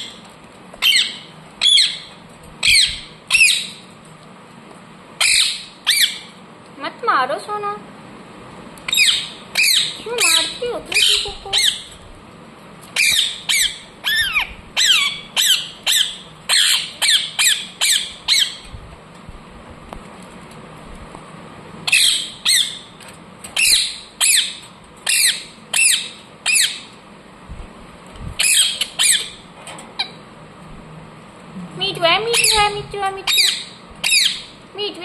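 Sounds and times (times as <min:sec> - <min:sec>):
parrot screeching: 0:00.8 - 0:03.8, 0:05.2 - 0:06.3, 0:08.9 - 0:11.9, 0:13.0 - 0:18.6, 0:21.8 - 0:22.9, 0:23.6 - 0:26.9, 0:28.4 - 0:29.4, 0:33.3 - 0:34.6.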